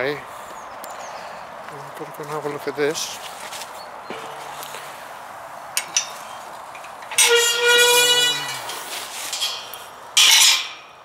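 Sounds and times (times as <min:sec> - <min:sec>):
metal gate squealing: 0:04.1 - 0:04.8, 0:05.8 - 0:10.9
gate clanging against frame: 0:04.1 - 0:05.2, 0:05.8 - 0:10.9.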